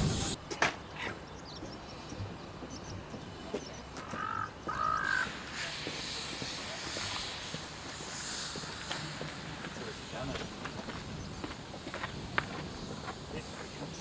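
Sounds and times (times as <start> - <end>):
steam hissing from locomotive: 0.0 - 0.4, 3.1 - 14.0
crow cawing: 4.0 - 5.4.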